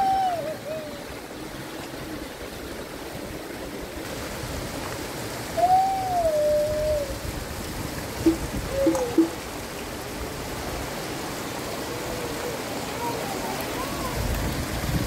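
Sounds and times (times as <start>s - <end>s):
running water: 0.0s - 15.0s
long gliding call: 8.3s - 9.4s.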